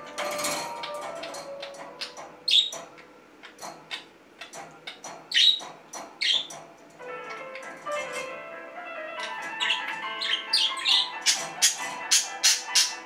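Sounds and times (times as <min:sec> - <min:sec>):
budgerigar chirping: 0:00.8 - 0:06.6, 0:09.1 - 0:13.0.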